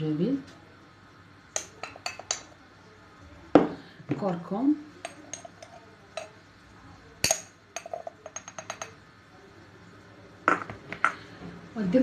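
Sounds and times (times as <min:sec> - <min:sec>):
metal spoon clinking on container: 0:01.6 - 0:02.5, 0:05.0 - 0:06.4, 0:07.2 - 0:09.0.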